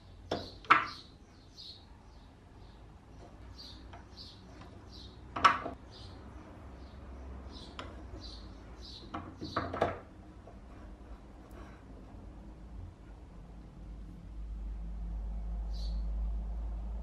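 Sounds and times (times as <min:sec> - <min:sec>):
small bird chirping: 0:00.0 - 0:09.8, 0:15.7 - 0:16.2.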